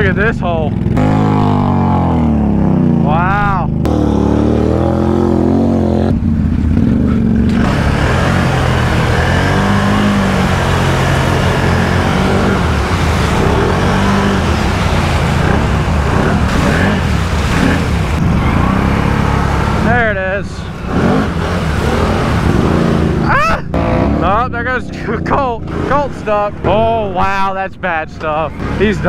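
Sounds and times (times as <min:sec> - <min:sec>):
quad engine revving: 0:00.0 - 0:26.9, 0:28.5 - 0:29.0
mud and water splashing: 0:07.5 - 0:27.1.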